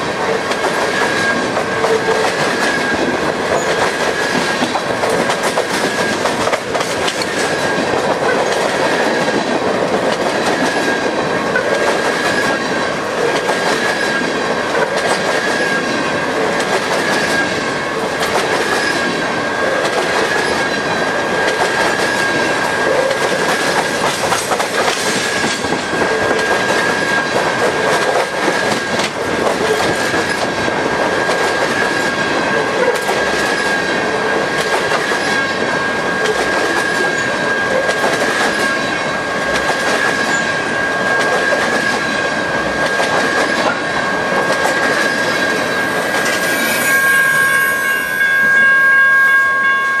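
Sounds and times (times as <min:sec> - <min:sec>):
train wheels clicking over rail joints: 0:00.1 - 0:46.9
high-pitched ringing tone: 0:45.6 - 0:50.0.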